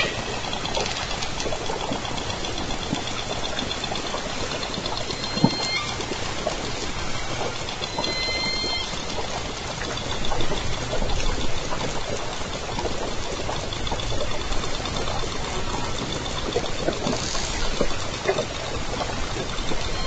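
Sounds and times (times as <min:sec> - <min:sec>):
whale echolocation clicks: 0:00.0 - 0:20.0
underwater sea noise hiss: 0:17.0 - 0:17.8.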